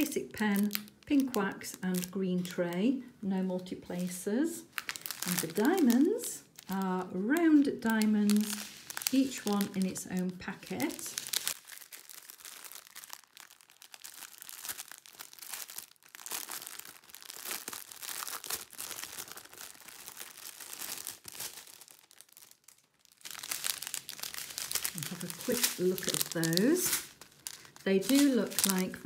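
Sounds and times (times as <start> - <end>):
plastic bags crinkling: 0.0 - 2.8, 3.5 - 29.0.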